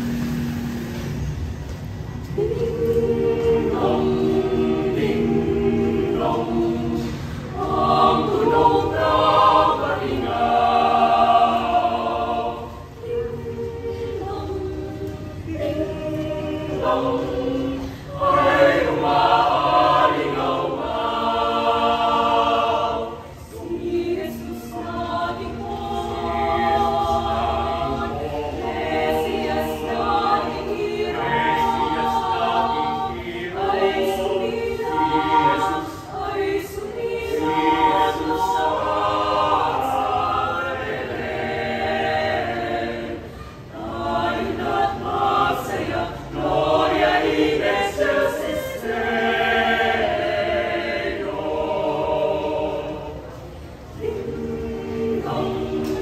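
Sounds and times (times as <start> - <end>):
choir singing a carol: 0.0 - 56.0.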